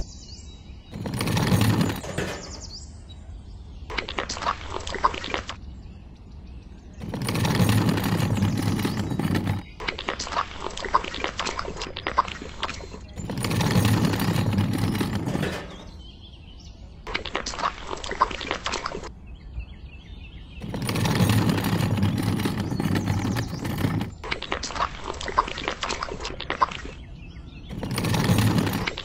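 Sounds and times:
metal scoop scraping wet concrete: 0.9s - 2.8s, 7.0s - 9.7s, 13.0s - 16.0s, 20.6s - 24.2s, 27.7s - 29.0s.

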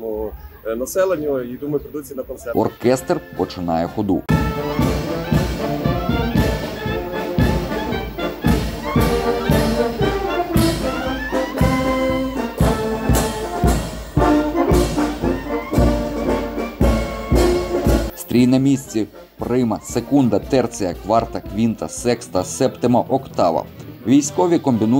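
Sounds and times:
brass band playing a march: 2.6s - 23.2s
bass drum beat: 4.3s - 22.6s.

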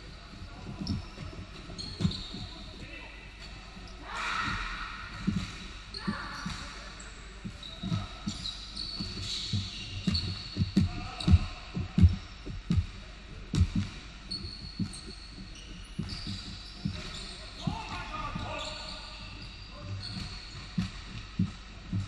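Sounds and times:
sneakers squeaking on floor: 0.0s - 22.0s
basketball bouncing on hardwood: 4.5s - 5.6s, 7.5s - 18.4s.

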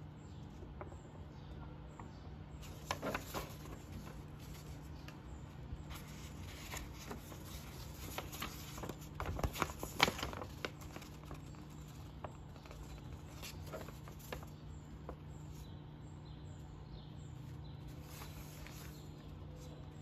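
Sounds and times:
steady low hum: 0.0s - 20.0s
paper crackle: 2.6s - 15.6s, 17.8s - 20.0s
paper rustling and crinkling: 2.6s - 15.6s, 17.4s - 20.0s.

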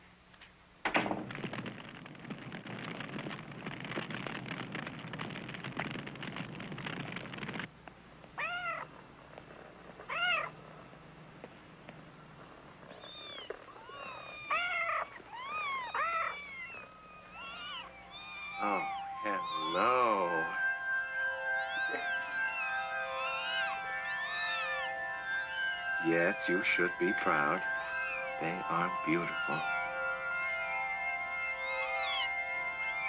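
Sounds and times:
steady rough noise: 0.0s - 13.8s
cat meowing: 8.4s - 8.9s, 10.1s - 10.5s, 13.0s - 18.5s
kittens mewing: 8.4s - 8.9s, 10.1s - 10.5s, 13.0s - 18.9s.

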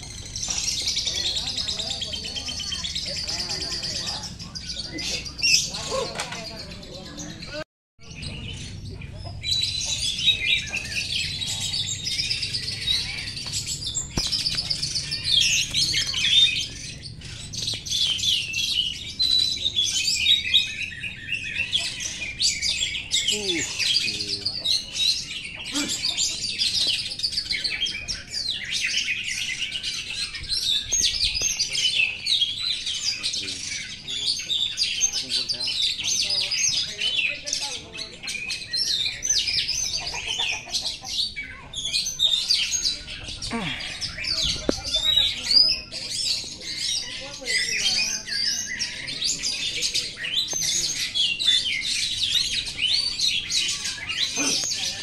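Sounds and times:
caged songbirds singing: 0.0s - 55.0s.

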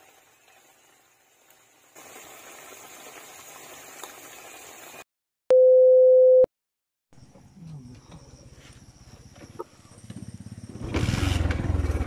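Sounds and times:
sauce bubbling in a wok: 0.0s - 5.0s
test-card beep: 5.5s - 6.5s.

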